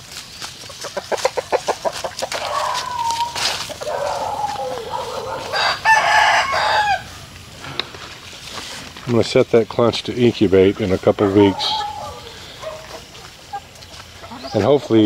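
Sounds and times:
chickens clucking: 0.0 - 15.0
rooster crowing: 2.4 - 7.3, 11.2 - 13.0.

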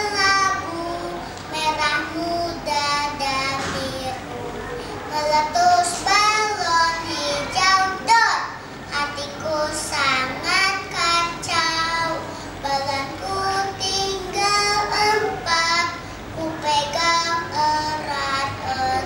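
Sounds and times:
boy singing: 0.0 - 4.4, 5.1 - 19.0.

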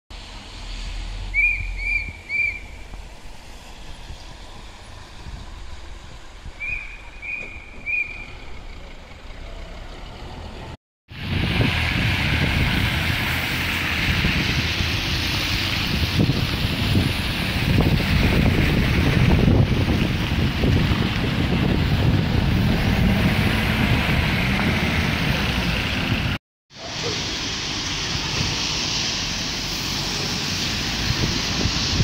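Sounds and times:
low street background: 0.1 - 32.0
wind on microphone: 11.1 - 26.4, 30.9 - 32.0.

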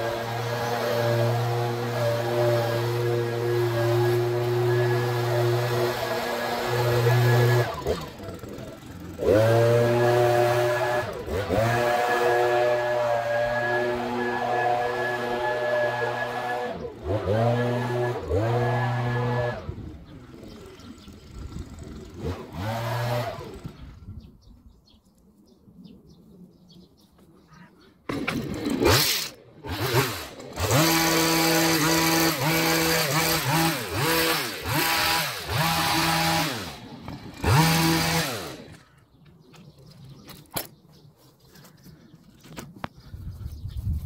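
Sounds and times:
hedge trimmer engine revving: 0.0 - 24.0, 28.1 - 39.0.

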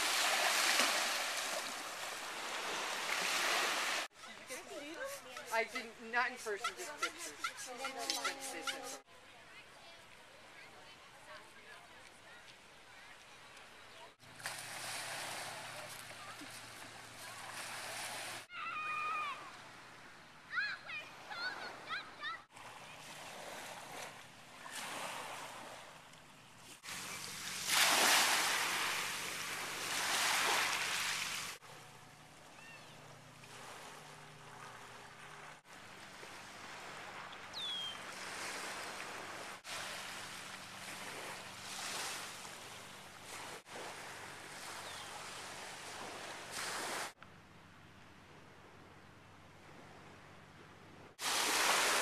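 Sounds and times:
small waves washing on beach: 0.0 - 9.0, 14.2 - 18.5, 26.6 - 31.7, 33.4 - 47.2, 51.2 - 52.0.

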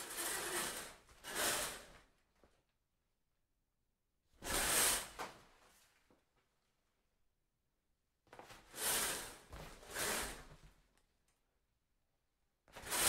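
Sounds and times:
shower curtain sliding on rod: 0.0 - 2.0, 4.4 - 5.4, 8.6 - 10.6, 12.7 - 13.0.

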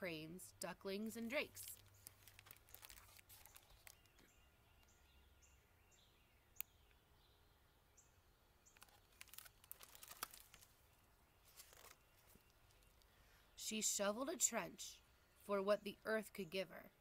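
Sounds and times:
book pages rustling: 1.6 - 4.3, 8.7 - 10.8, 11.4 - 13.1.

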